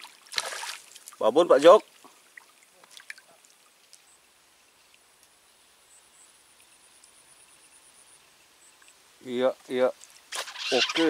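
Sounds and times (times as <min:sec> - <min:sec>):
faint splash: 0:00.0 - 0:04.2, 0:09.6 - 0:11.0
faint insect trill: 0:02.7 - 0:11.0.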